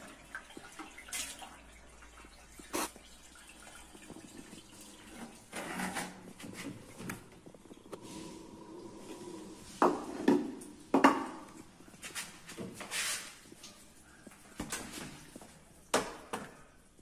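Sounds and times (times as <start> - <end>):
hard objects knocking and clattering: 9.8 - 11.6.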